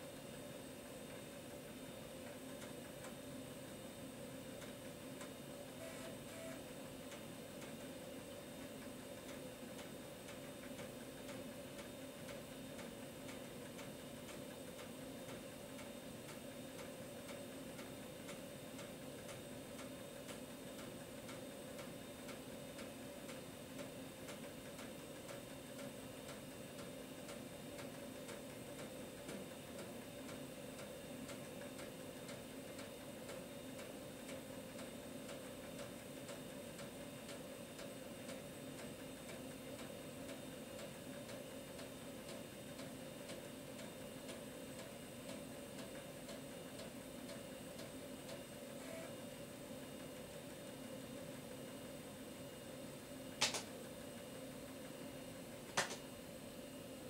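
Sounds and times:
steady hum: 0:00.0 - 0:22.4.

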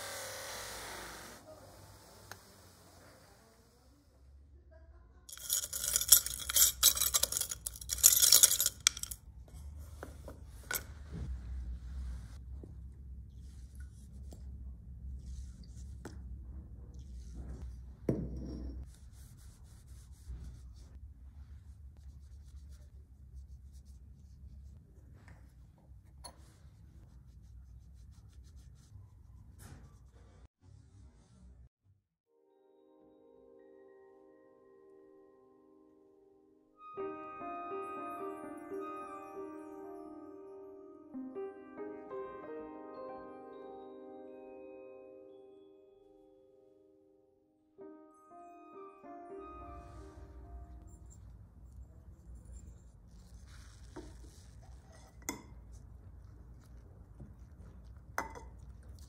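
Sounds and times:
small brass parts clinking: 0:05.3 - 0:09.2.

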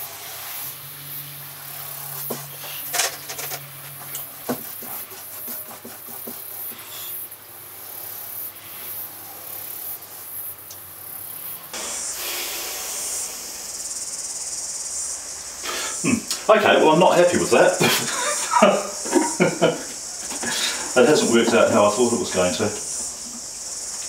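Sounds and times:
steady high hiss: 0:00.0 - 0:24.0
paintbrush scrubbing on canvas: 0:02.0 - 0:07.2.

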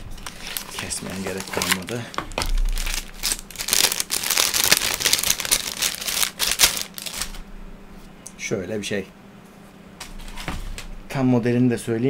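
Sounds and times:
plastic bag crinkling: 0:00.0 - 0:07.4.

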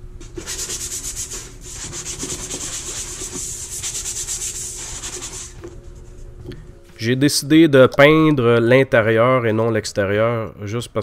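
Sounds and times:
sanding block scratching wood: 0:00.4 - 0:05.6.

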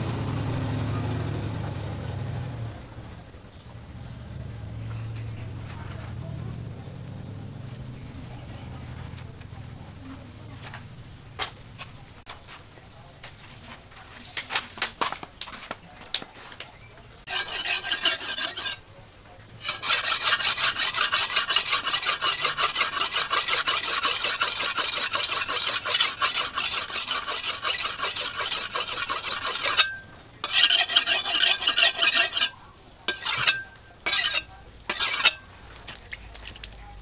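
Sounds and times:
blade scraping on sharpening stone: 0:17.3 - 0:18.8, 0:19.6 - 0:35.5.

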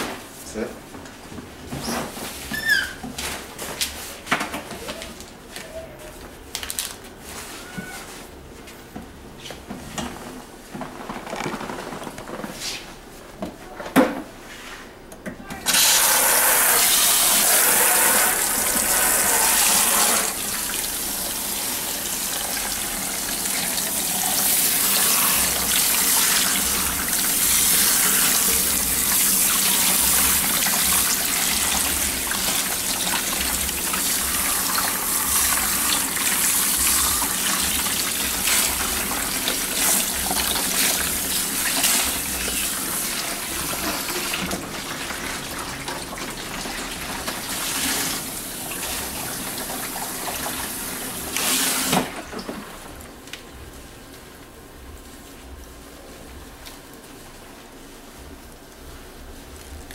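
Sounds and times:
water spraying into sink: 0:15.7 - 0:52.5.

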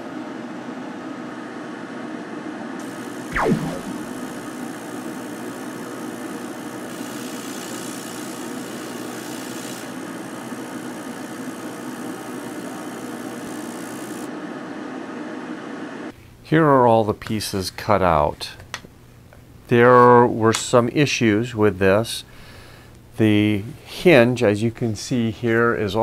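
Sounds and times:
laser cutter humming: 0:03.0 - 0:14.2
laser cutting hiss: 0:03.3 - 0:04.4, 0:07.0 - 0:10.0.

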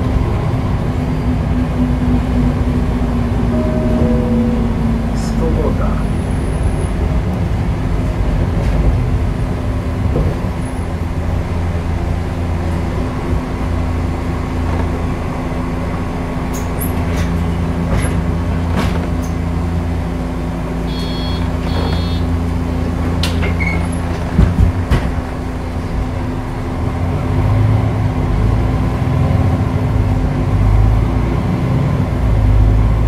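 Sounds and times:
bus diesel engine running: 0:00.0 - 0:33.0
short high beeps: 0:03.5 - 0:05.4.

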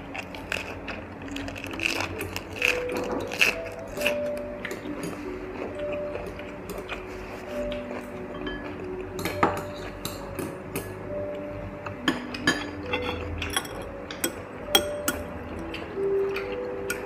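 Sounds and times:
utensils clinking on glass bowls: 0:07.7 - 0:11.0, 0:12.0 - 0:17.0.

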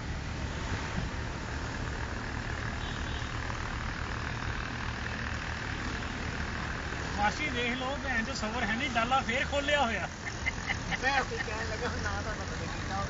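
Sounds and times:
road noise: 0:00.0 - 0:13.0
vehicle engine hum: 0:00.0 - 0:13.0.

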